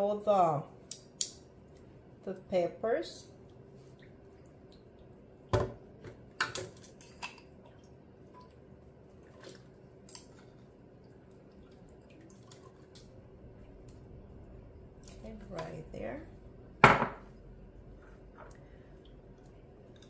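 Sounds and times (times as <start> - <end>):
water dripping: 3.4 - 15.8, 17.3 - 20.0.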